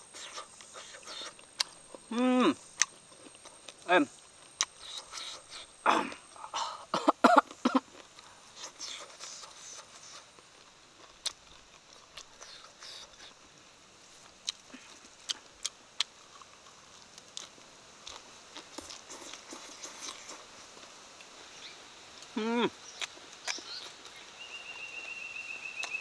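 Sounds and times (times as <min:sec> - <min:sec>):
mouth sounds: 0:00.0 - 0:02.9, 0:22.2 - 0:24.0.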